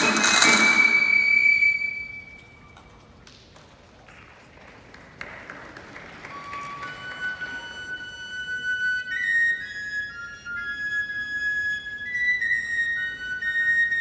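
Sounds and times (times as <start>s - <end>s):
flute playing: 0.0s - 3.0s, 6.1s - 14.0s.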